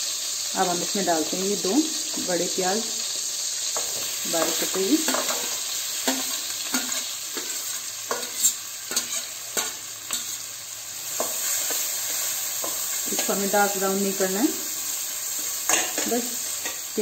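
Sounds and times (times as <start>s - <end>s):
onions sizzling in butter: 0.0s - 17.0s
spoon scraping and clinking on steel: 3.8s - 10.4s.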